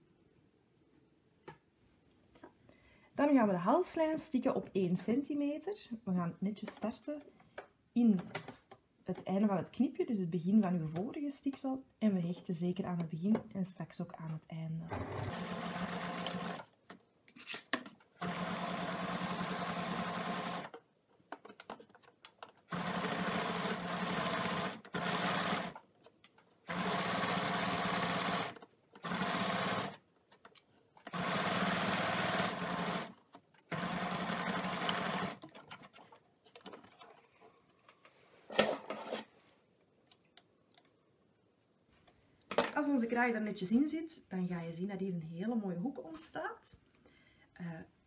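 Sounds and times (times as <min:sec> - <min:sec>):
sewing machine stitching: 0:14.9 - 0:16.7, 0:18.2 - 0:20.8, 0:22.7 - 0:25.8, 0:26.6 - 0:30.0, 0:31.0 - 0:36.1.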